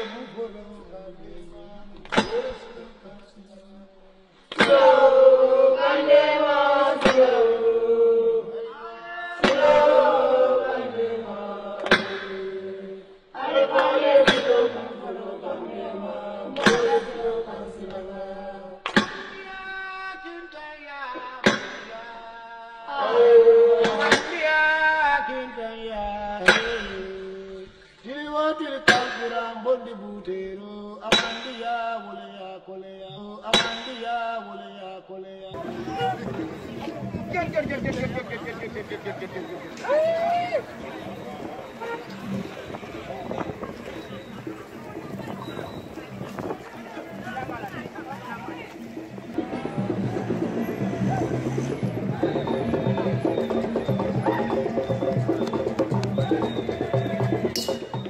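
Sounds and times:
voices chanting: 0.0s - 27.7s, 35.5s - 58.0s
sharp percussive hit: 57.4s - 58.0s
ringing metallic clang: 57.5s - 58.0s.

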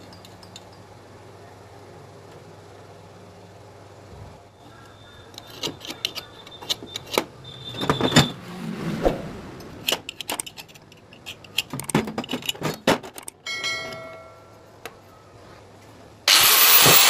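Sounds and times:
metal pipes clinking and scraping: 5.3s - 8.3s, 9.8s - 14.6s
high metallic ring: 13.4s - 14.7s.

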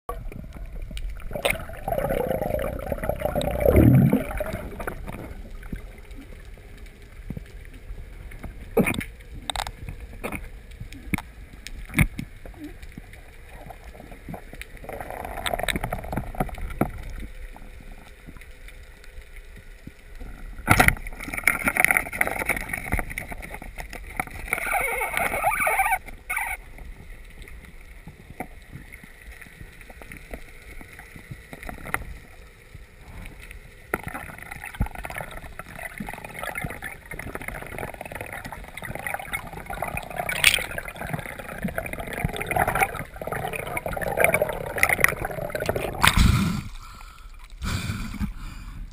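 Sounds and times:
underwater rushing and gurgling water: 0.1s - 48.9s.

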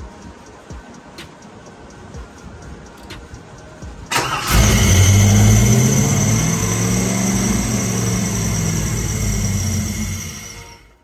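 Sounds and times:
car engine idling fast: 3.6s - 10.6s.

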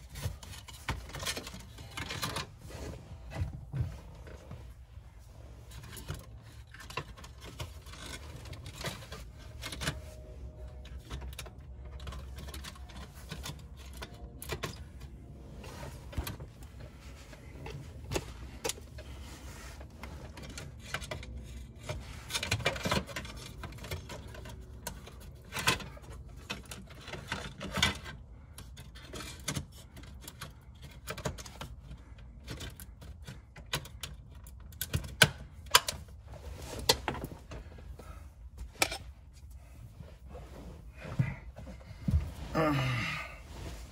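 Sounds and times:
plastic trim clicks and rattles: 20.3s - 36.1s.

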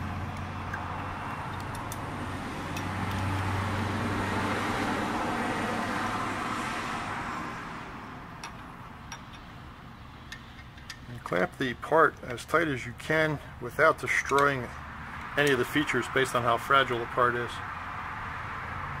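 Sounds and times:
metallic clamp clicks: 0.3s - 2.1s, 2.7s - 3.5s.

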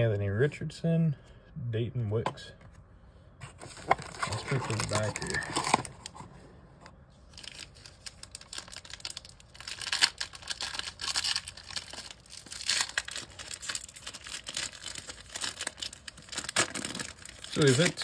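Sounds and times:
wrapper tearing and crinkling: 3.7s - 6.2s, 7.3s - 18.0s.

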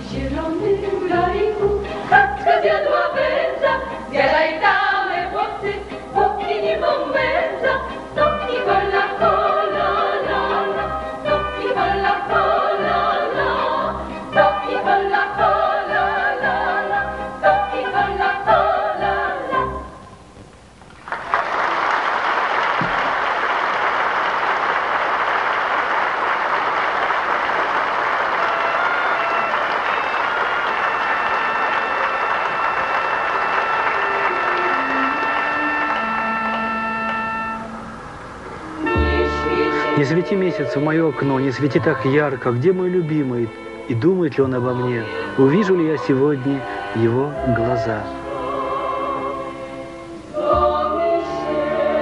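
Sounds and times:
women's choir singing folk song: 0.0s - 20.0s, 38.7s - 52.0s
audience applauding: 21.0s - 37.4s.

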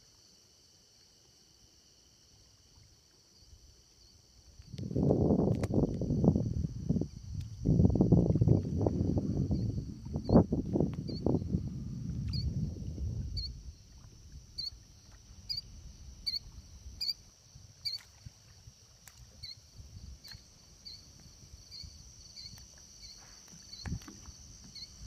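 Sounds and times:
low rumbling noise: 4.8s - 14.6s.

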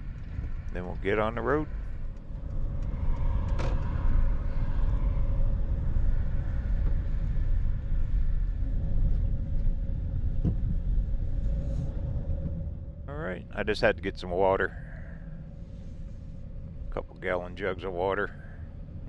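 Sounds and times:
car engine and tyres rumbling: 0.0s - 12.8s
steady hum: 0.0s - 19.0s.

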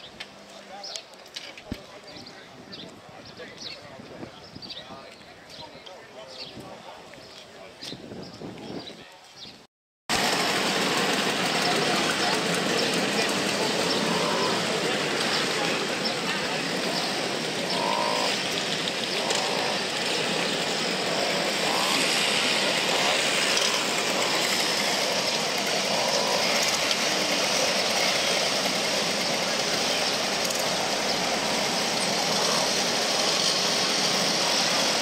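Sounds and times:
moped engines idling: 10.1s - 35.0s.

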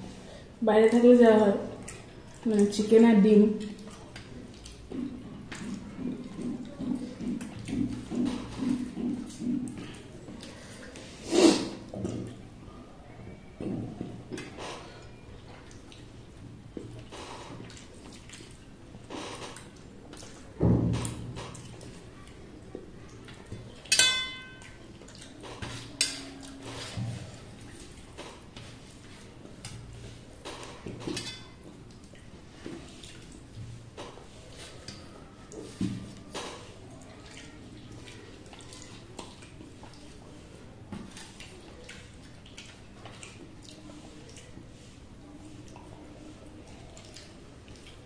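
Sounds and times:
steel plate clinking: 23.9s - 24.5s.

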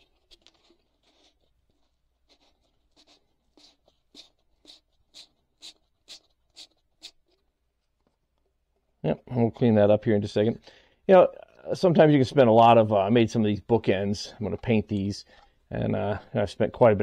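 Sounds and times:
sandpaper scratching: 2.3s - 7.3s.

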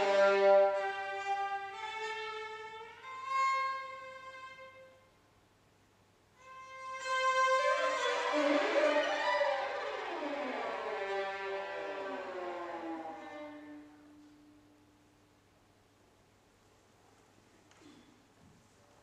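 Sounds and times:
violin playing held notes: 0.0s - 5.0s, 6.4s - 14.7s.

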